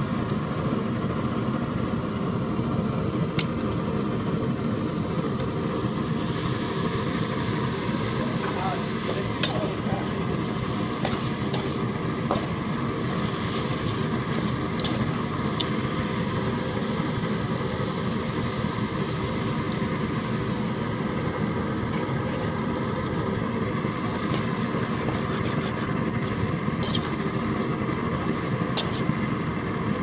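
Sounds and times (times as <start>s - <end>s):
metal spoon scraping a pot: 26.8s - 27.3s.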